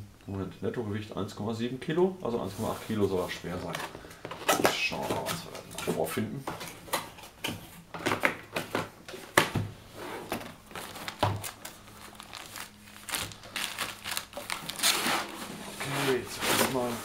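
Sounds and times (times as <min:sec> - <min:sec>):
cardboard scraping and crinkling: 0:09.9 - 0:17.0.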